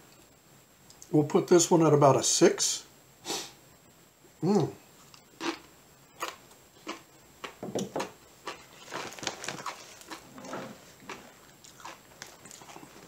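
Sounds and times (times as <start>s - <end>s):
person chewing crunchy chip: 5.0s - 13.0s.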